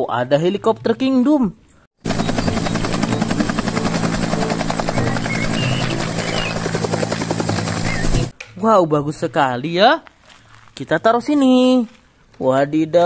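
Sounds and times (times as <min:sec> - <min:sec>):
engine and gearbox drone: 0:02.0 - 0:08.3
helicopter rotor beating: 0:02.0 - 0:08.3.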